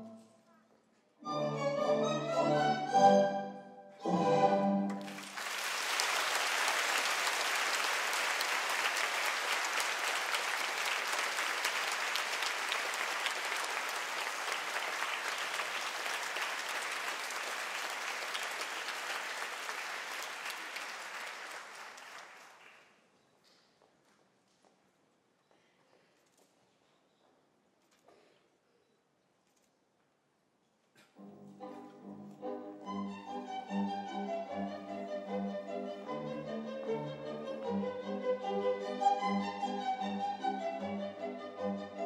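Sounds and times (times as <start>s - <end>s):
orchestral ballet music: 1.2s - 5.5s, 31.2s - 42.0s
audience applauding: 4.9s - 23.0s.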